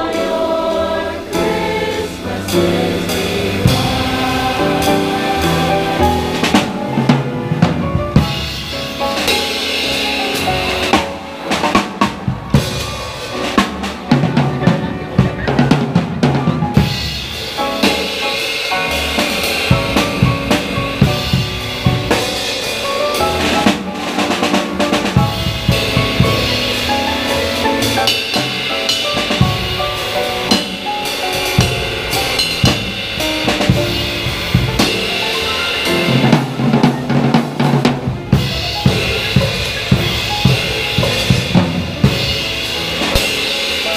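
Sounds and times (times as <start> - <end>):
drum kit beat: 0.0 - 43.9.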